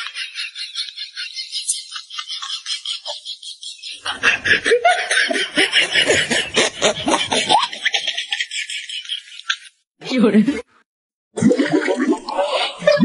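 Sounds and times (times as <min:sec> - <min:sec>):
person laughing: 0:04.0 - 0:08.2.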